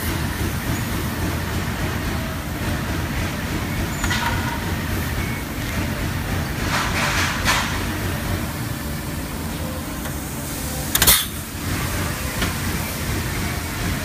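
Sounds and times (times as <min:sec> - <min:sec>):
sheet metal clatter: 0:06.6 - 0:08.0.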